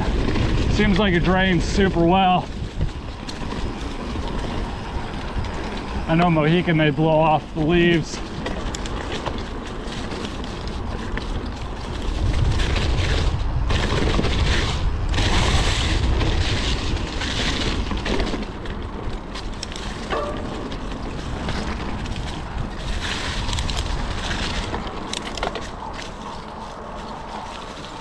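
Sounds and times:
small rattles and ticks: 0.0s - 28.0s
tyre and trail noise: 0.0s - 28.0s
wind buffeting microphone: 0.0s - 28.0s.

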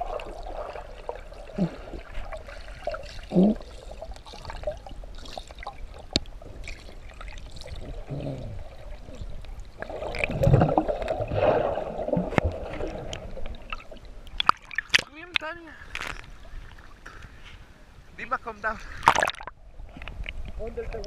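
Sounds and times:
underwater rushing and gurgling: 0.0s - 15.0s
water splashes: 0.0s - 17.7s, 18.6s - 21.0s
sharp underwater clicks: 12.3s - 16.4s.

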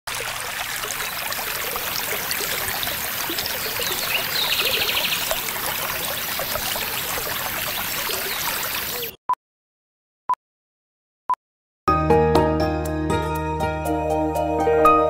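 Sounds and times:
river water trickling: 0.1s - 9.1s.

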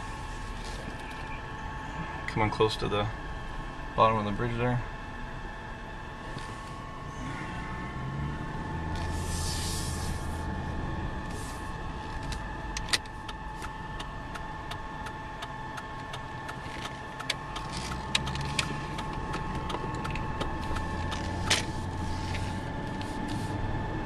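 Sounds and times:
car engine and road noise: 0.0s - 24.0s
faint steady high tone: 0.9s - 5.1s
small clicks and knocks: 16.1s - 21.7s.

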